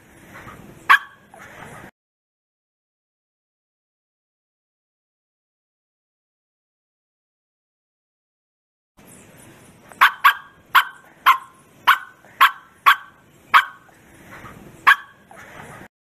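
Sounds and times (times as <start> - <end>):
dog barking: 0.9 - 1.4, 10.0 - 13.9, 14.8 - 15.8.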